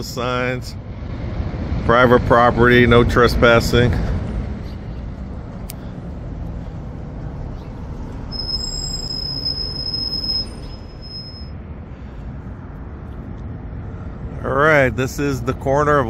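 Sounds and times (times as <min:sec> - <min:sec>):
street traffic rumbling: 0:00.0 - 0:16.0
high-pitched brake squeal: 0:08.2 - 0:11.6.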